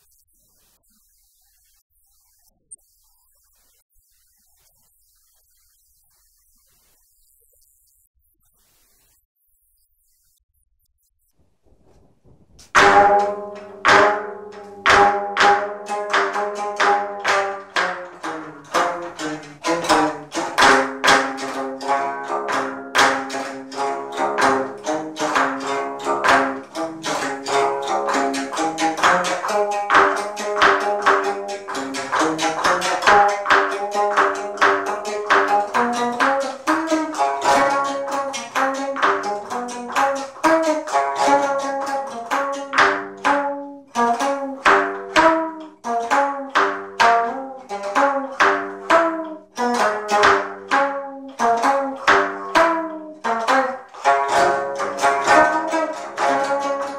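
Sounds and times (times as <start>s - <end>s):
low string ringing: 11.8s - 30.8s
zither struck with a stick: 11.8s - 43.4s, 44.1s - 56.9s.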